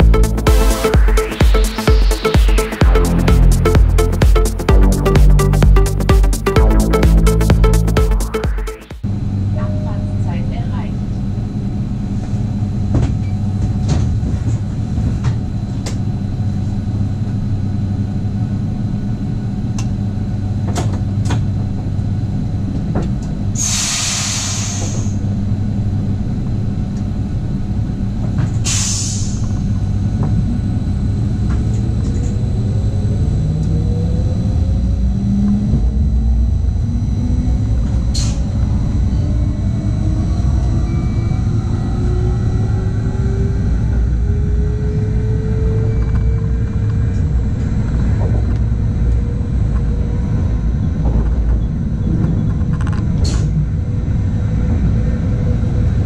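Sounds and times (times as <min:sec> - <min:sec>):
train low hum: 0:09.0 - 0:56.0
short air hisses: 0:23.6 - 0:25.2, 0:28.6 - 0:29.4.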